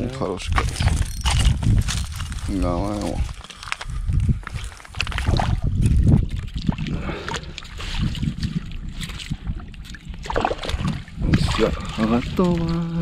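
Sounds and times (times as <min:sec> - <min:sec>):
wind buffeting microphone: 0:00.0 - 0:13.0
water sloshing and splashing: 0:04.4 - 0:13.0.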